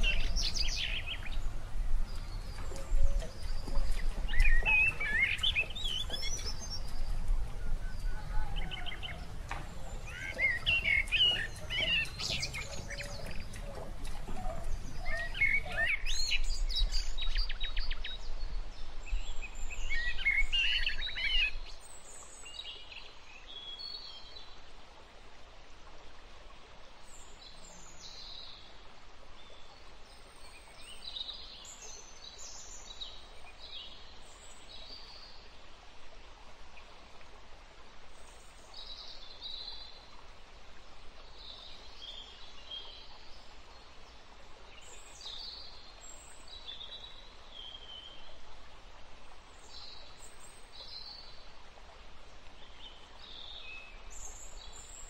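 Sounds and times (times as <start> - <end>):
birds singing and chirping: 0.0 - 21.8.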